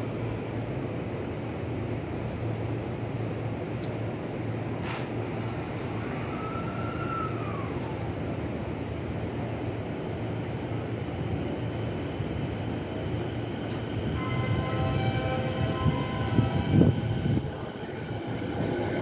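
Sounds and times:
electric train humming: 5.3 - 19.0
traction motors whining: 11.3 - 19.0.

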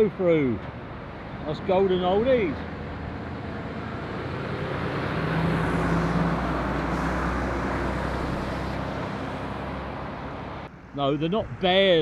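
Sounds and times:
lorry driving past: 2.7 - 10.7.

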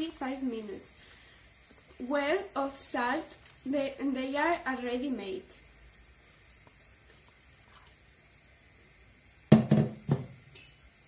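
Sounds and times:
water trickling into a pot: 0.0 - 9.5
plastic jug knocking on worktop: 9.5 - 10.4.

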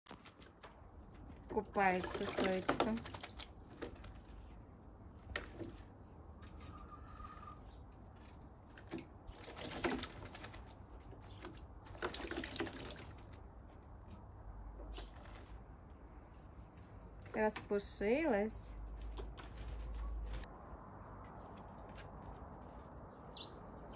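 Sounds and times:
bird splashing in water: 0.1 - 4.4, 8.4 - 14.0
wings fluttering: 0.1 - 14.2, 14.8 - 17.8, 18.8 - 20.5.

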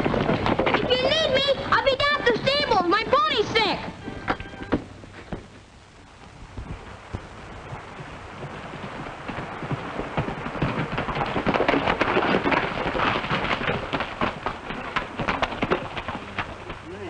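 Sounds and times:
hooves striking stones: 0.0 - 5.6, 6.2 - 17.0
horses splashing through water: 6.7 - 17.0.

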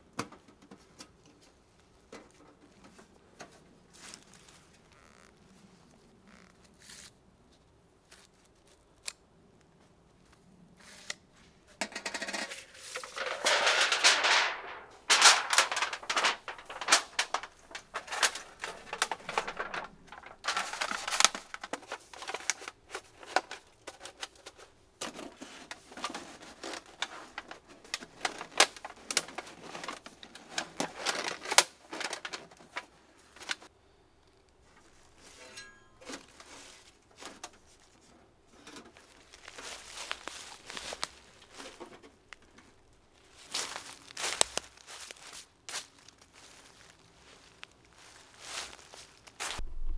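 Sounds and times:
metallic clicks and rattles: 11.8 - 22.5.

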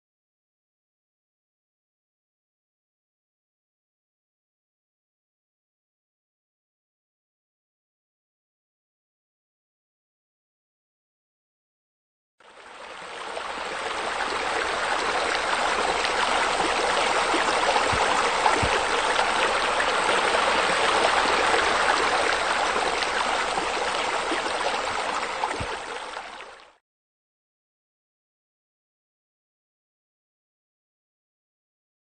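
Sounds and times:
splashing running water: 14.0 - 26.3.

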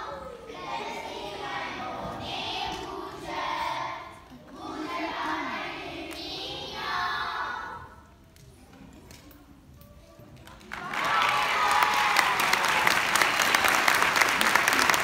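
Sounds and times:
children singing: 0.0 - 8.2.

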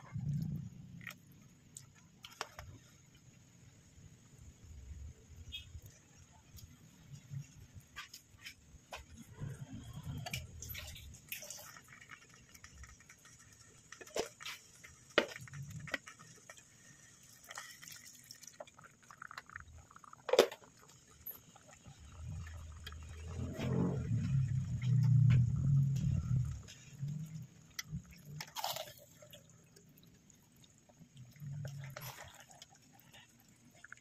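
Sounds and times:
pot bubbling and popping: 0.0 - 34.0
low hum: 22.0 - 28.9.

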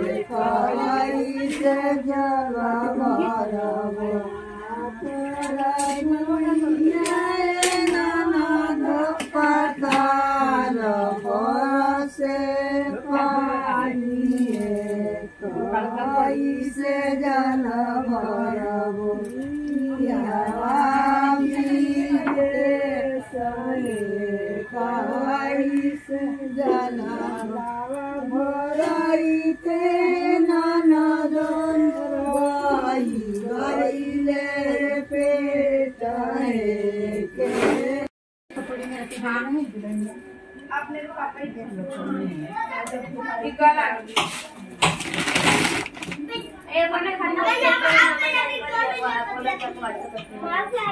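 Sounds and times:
women singing in unison: 0.0 - 40.3.

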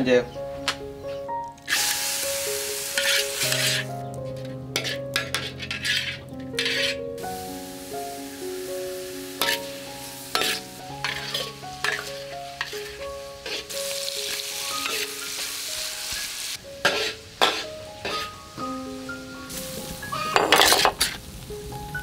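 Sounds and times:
soft background music: 0.0 - 22.0
oil sizzling: 1.4 - 22.0
metal spatula scraping a wok: 3.0 - 7.0, 9.4 - 15.7, 16.8 - 18.3, 20.2 - 21.2.

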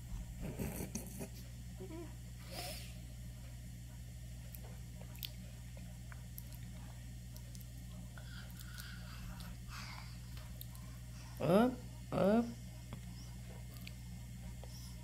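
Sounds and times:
steady low hum: 0.0 - 15.0
baby gnawing rice cracker: 4.4 - 10.9.

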